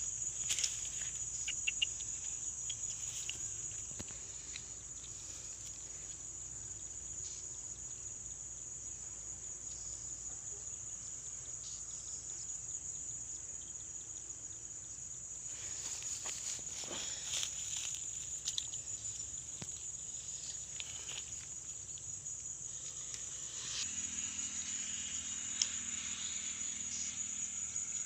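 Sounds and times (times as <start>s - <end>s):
insects trilling: 0.0s - 28.0s.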